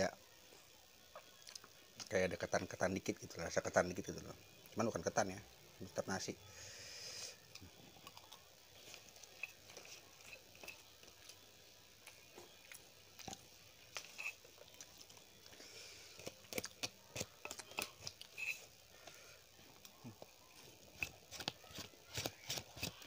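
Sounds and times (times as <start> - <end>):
person chewing: 7.4 - 11.4, 12.0 - 23.0.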